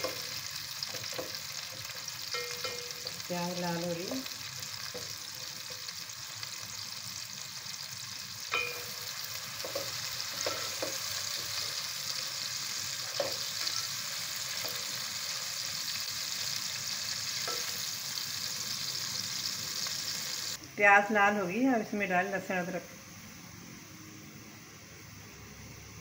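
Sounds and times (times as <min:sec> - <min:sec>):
spoon tapping and scraping pot: 0:00.0 - 0:03.3, 0:08.5 - 0:11.7, 0:13.0 - 0:15.0, 0:17.4 - 0:17.8
onions sizzling in oil: 0:00.0 - 0:22.5.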